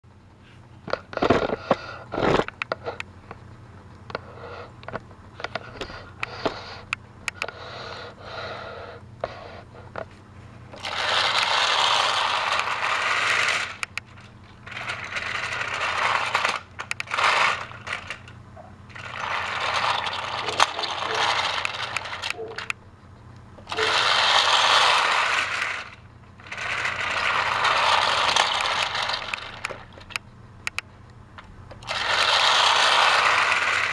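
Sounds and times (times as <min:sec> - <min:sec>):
toy train rattling over plastic track: 0:00.9 - 0:03.0, 0:10.7 - 0:22.8, 0:23.6 - 0:30.8, 0:31.7 - 0:33.9
sharp clicks: 0:16.4 - 0:18.4, 0:28.2 - 0:31.9.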